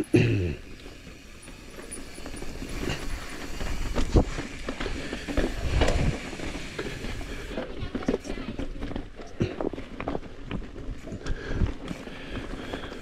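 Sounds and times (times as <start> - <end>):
bike chain and frame rattling: 0.1 - 13.0
bike tyres grinding on rock: 0.1 - 13.0
wheels knocking on rock: 0.6 - 13.0.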